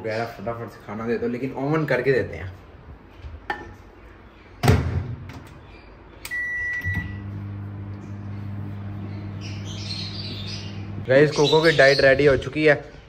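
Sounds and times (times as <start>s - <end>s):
single beep: 6.3s - 7.2s
microwave oven humming: 6.3s - 11.2s.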